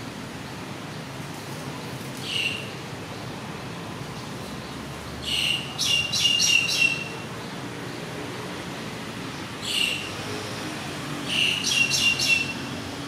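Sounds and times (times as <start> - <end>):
steady background hiss: 0.0 - 13.0
small bird chirping: 4.2 - 7.6, 11.3 - 12.7.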